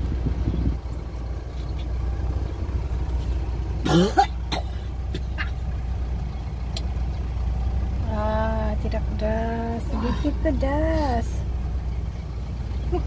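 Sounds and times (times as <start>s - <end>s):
steady low rumble: 0.0s - 13.0s
man coughing: 3.8s - 5.6s.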